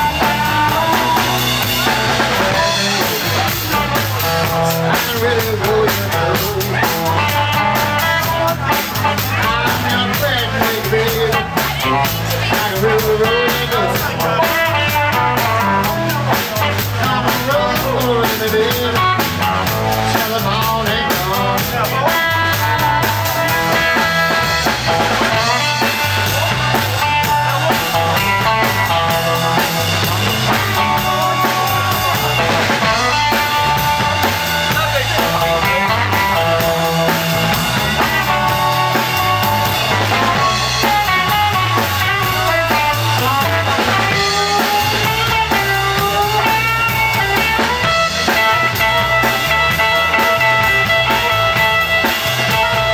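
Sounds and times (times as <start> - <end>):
drum kit shuffle: 0.0 - 52.9
electric guitars: 0.0 - 52.9
blues harmonica wailing: 17.1 - 52.9.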